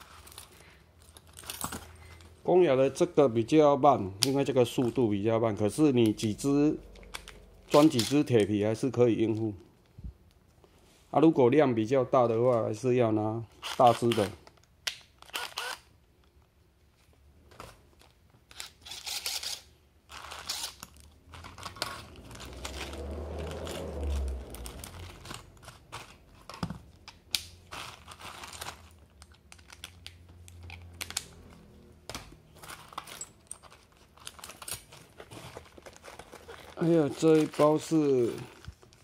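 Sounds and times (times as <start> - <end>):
low rumble: 22.0 - 25.6
nylon pouches and plastic bag rustling: 27.6 - 30.0, 32.5 - 39.0.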